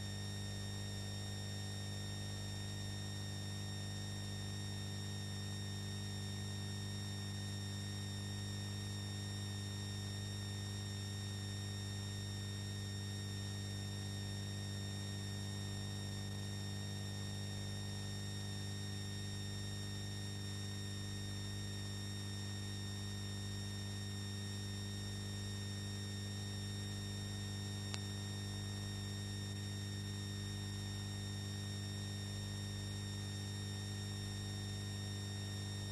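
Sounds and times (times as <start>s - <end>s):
electrical mains hum: 0.0s - 35.9s
faint click: 27.9s - 28.1s.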